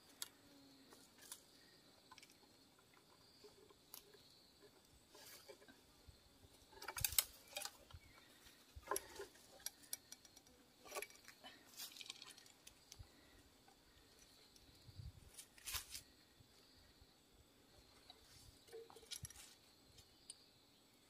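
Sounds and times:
clicks and rustles in leaves: 6.6s - 10.1s, 10.8s - 13.2s, 15.3s - 16.1s, 18.2s - 20.1s.

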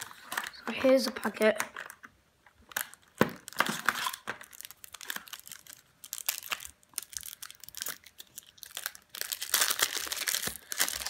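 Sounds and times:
foil packet crinkling: 2.6s - 11.0s.

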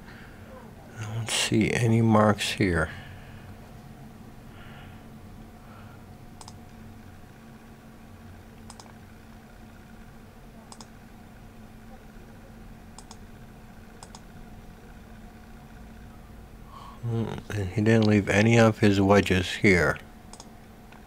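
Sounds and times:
low steady hum: 0.0s - 21.0s
computer mouse clicks: 6.4s - 6.7s, 8.6s - 9.0s, 10.7s - 11.0s, 13.0s - 13.2s, 14.0s - 14.3s, 20.3s - 21.0s.

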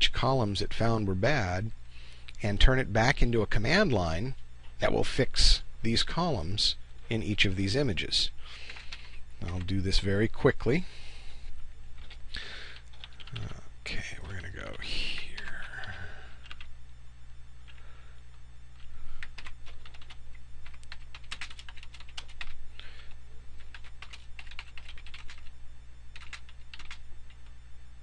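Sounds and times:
keyboard typing: 8.6s - 9.8s, 12.0s - 12.2s, 12.8s - 13.6s, 15.1s - 16.7s, 18.8s - 22.6s, 23.6s - 25.5s, 26.1s - 27.4s.

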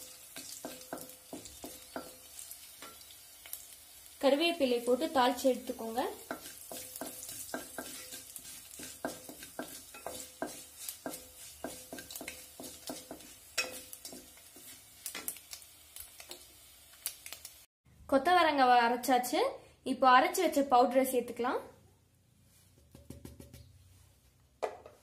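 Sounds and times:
light sizzle of frying oil: 0.0s - 17.7s
spatula tapping a pot: 0.4s - 2.2s, 6.2s - 14.4s.

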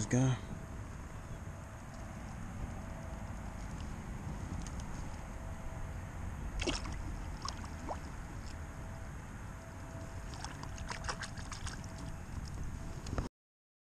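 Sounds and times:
wind rumble on microphone: 0.0s - 13.3s
water splashing: 6.6s - 8.6s, 10.2s - 12.2s.

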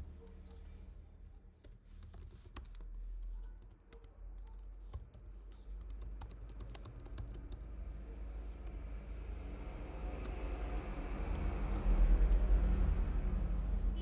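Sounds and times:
computer keyboard typing: 1.6s - 7.6s, 10.1s - 12.5s.

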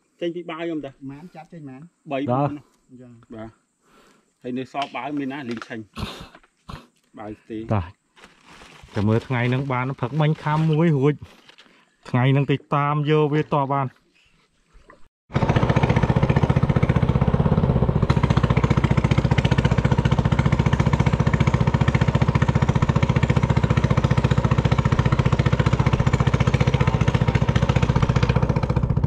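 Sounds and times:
engine running steadily: 15.3s - 29.0s.

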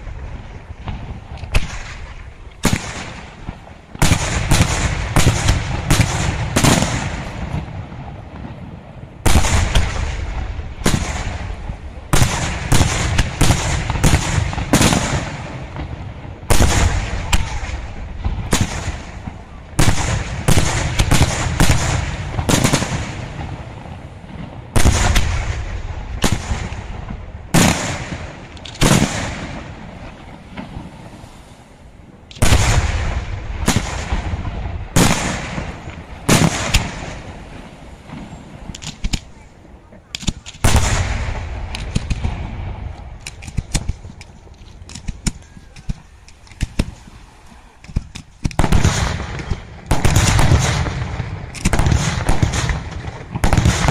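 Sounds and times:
firework shells bursting: 24.4s - 31.3s, 32.2s - 39.4s, 40.0s - 53.9s.

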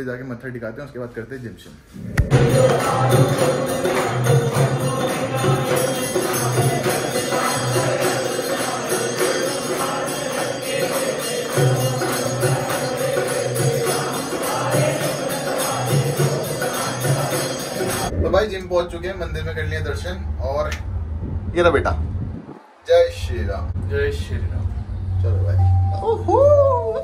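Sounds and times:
devotional music: 2.2s - 18.1s
jingling metal percussion: 2.3s - 18.1s.

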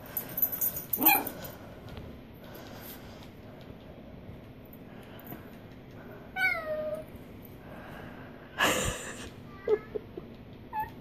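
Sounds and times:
small dog whining and yipping: 6.4s - 7.0s, 10.7s - 11.0s.

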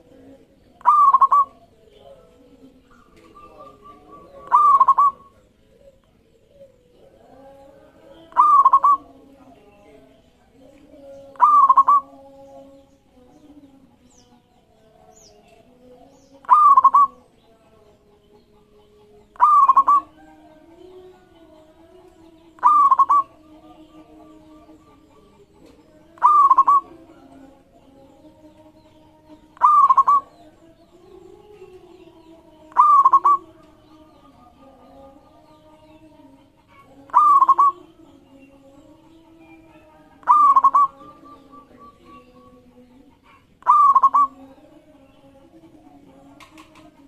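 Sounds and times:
dove cooing: 0.0s - 9.3s, 11.3s - 12.3s, 16.4s - 17.2s, 18.6s - 27.5s, 28.5s - 34.7s, 36.2s - 38.0s, 38.7s - 44.8s.

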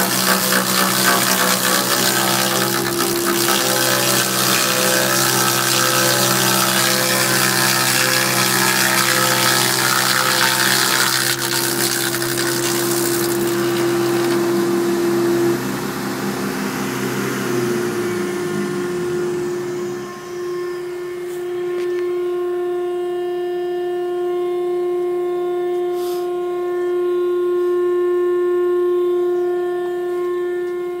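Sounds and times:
cutter head cutting wood: 0.0s - 15.5s
machine running with pitched hum: 0.0s - 31.0s.

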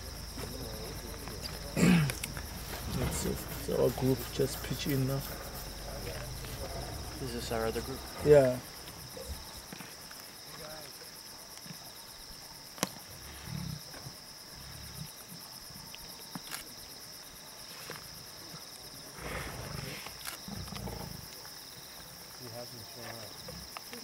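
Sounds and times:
lions growling: 0.0s - 9.8s, 19.1s - 21.5s
crickets chirping: 0.0s - 24.0s.

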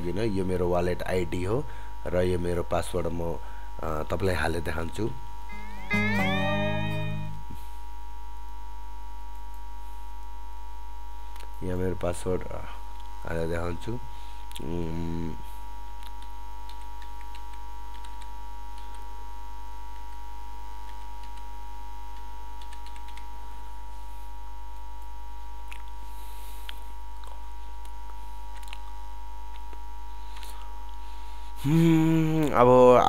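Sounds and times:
electrical mains hum: 0.0s - 33.0s
computer keyboard typing: 16.7s - 19.0s, 22.6s - 23.2s.

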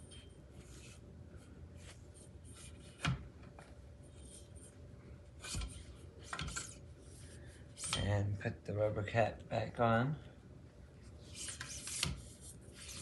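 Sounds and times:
metal tube scraping on steel: 7.8s - 8.1s, 11.2s - 13.0s.

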